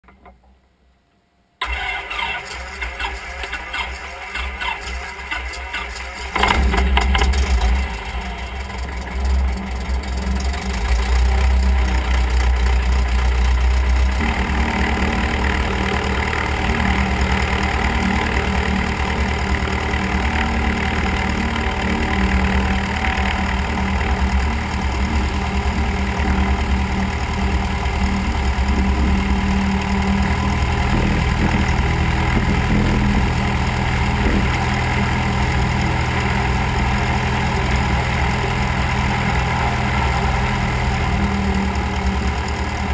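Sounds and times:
airplane engine and propeller idling: 1.6s - 42.9s.

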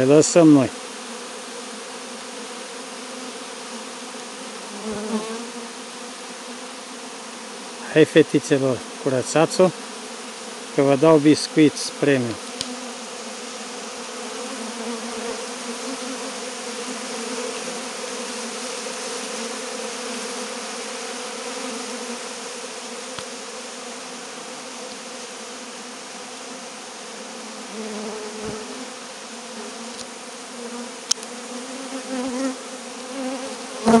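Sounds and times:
honey bees buzzing: 0.0s - 34.0s
sharp click: 31.1s - 31.3s.

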